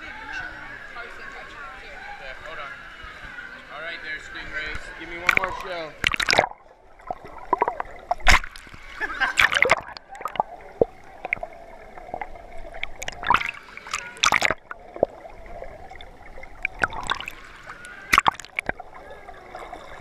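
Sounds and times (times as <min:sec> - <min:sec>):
muffled water gurgling underwater: 0:05.3 - 0:20.0.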